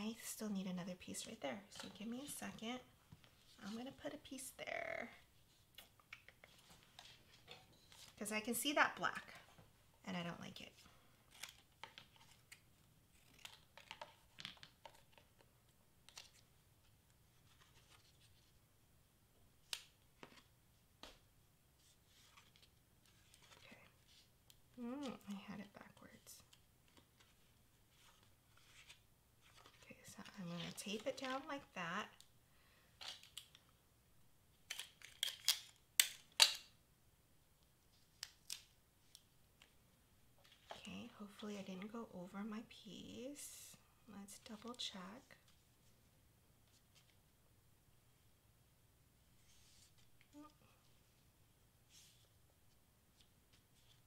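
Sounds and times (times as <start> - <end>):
tape and card crinkling: 11.3 - 16.5, 22.1 - 32.3, 33.0 - 33.7, 34.6 - 36.7
paper rustling: 26.5 - 31.4.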